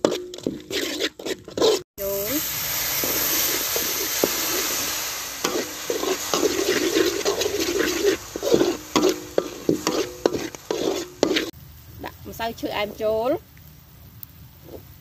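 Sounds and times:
metal spatula scraping a wok: 0.0 - 11.6
wok sizzling: 0.0 - 15.0.

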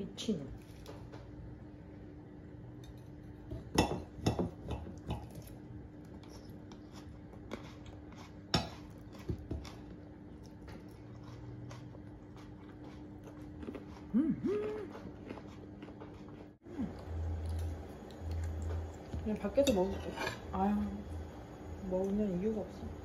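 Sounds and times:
low hum: 16.1 - 23.0.

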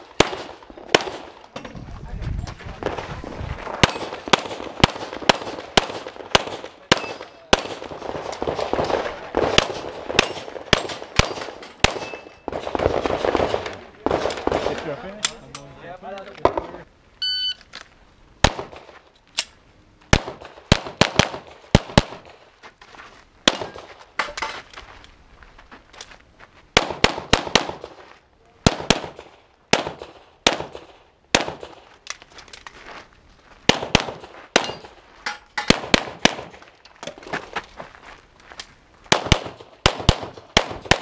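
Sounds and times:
pistol shots: 0.1 - 1.3, 3.8 - 15.0, 20.1 - 22.3, 23.4 - 23.9, 26.8 - 28.0, 28.6 - 31.8, 35.6 - 36.6, 39.1 - 41.0
high electronic beep: 17.2 - 17.6.

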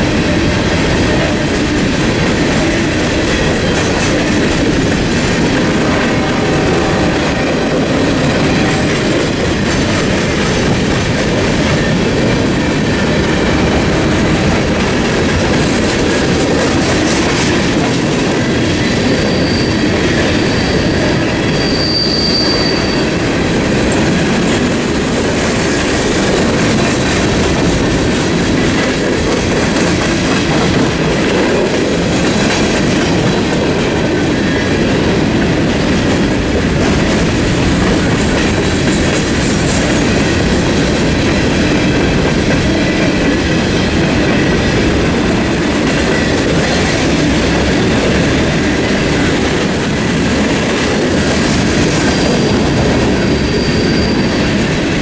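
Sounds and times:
clickety-clack over rail joints: 0.0 - 55.0
train wheels rumbling on rails: 0.0 - 55.0
high wheel squeal: 19.0 - 23.2, 52.0 - 54.8.

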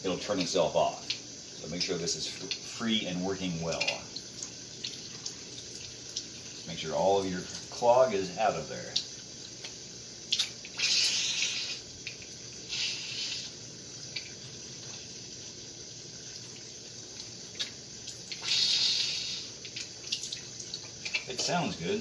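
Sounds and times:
man blowing hard: 10.8 - 11.8, 18.4 - 19.5.

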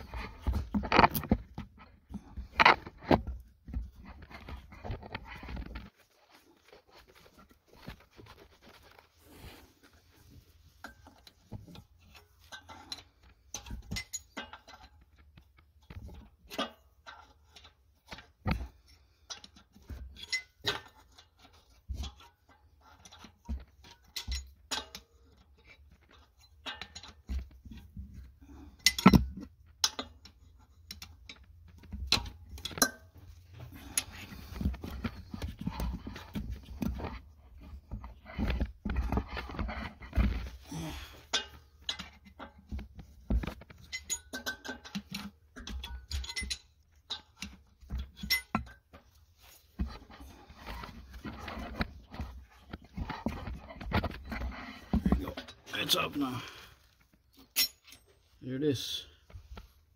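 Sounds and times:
wrench clicking and scraping metal: 10.8 - 27.6, 28.7 - 37.9, 43.6 - 55.7, 57.2 - 58.2.

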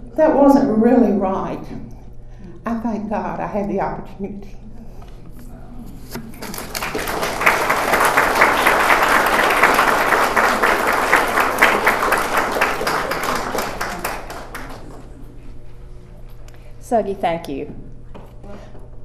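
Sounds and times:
audience applauding: 6.3 - 15.3.

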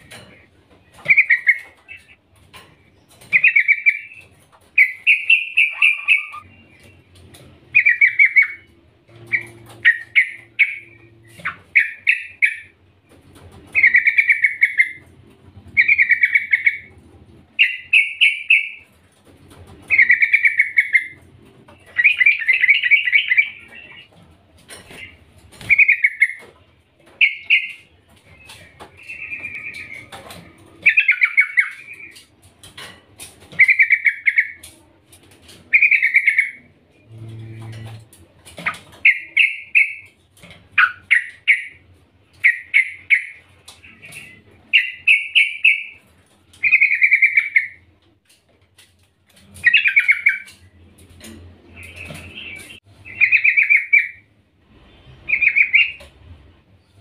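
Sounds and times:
bird chattering calls: 3.2 - 6.8, 7.7 - 12.8, 13.8 - 15.1, 15.8 - 16.9, 19.9 - 24.1, 25.0 - 26.5, 27.2 - 32.3, 33.5 - 34.7, 35.7 - 36.7, 51.8 - 54.3.

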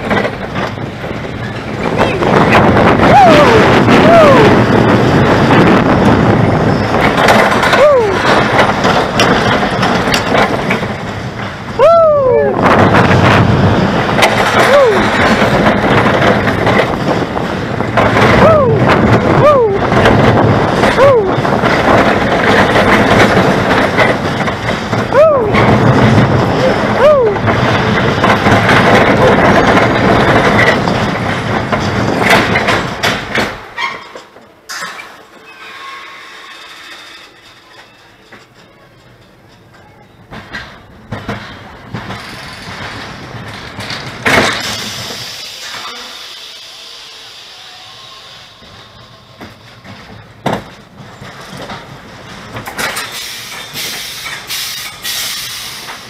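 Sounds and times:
roller coaster rattling and rumbling: 0.0 - 56.0
roller coaster track clacks: 0.0 - 56.0
hissing bursts: 44.4 - 49.8, 53.0 - 56.0.

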